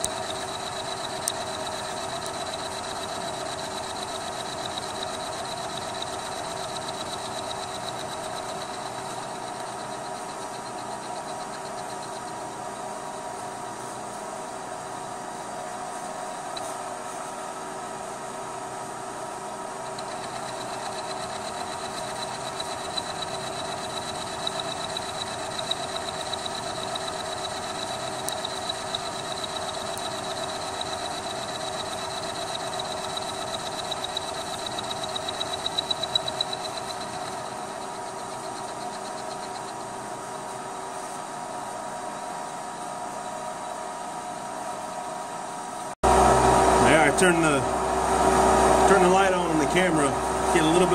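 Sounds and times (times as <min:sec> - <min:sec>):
end mill cutting steel whine: 0:00.0 - 0:13.7, 0:19.8 - 0:39.9, 0:46.0 - 0:50.9
milling machine hum: 0:00.0 - 0:50.9.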